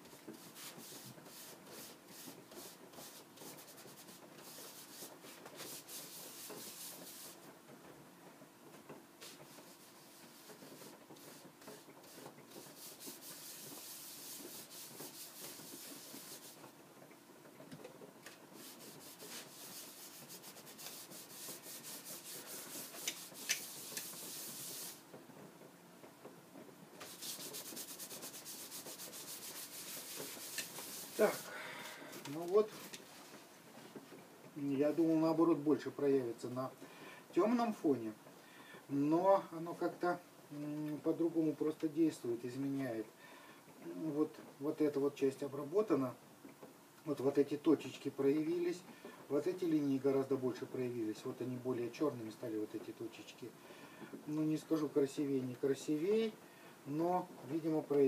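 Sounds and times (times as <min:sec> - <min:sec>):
rag scrubbing wood veneer: 0:00.4 - 0:07.4, 0:09.2 - 0:16.7, 0:18.6 - 0:25.0, 0:27.0 - 0:31.5.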